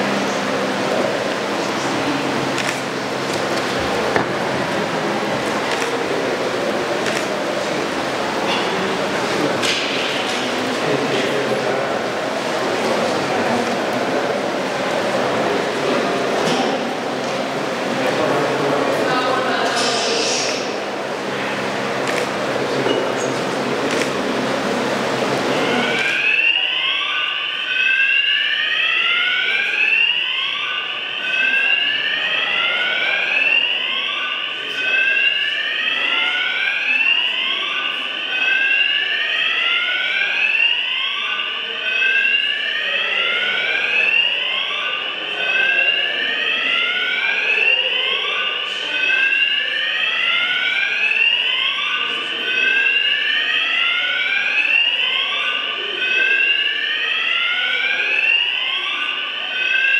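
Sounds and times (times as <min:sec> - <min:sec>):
fire alarm whooping: 0:23.9 - 0:59.9.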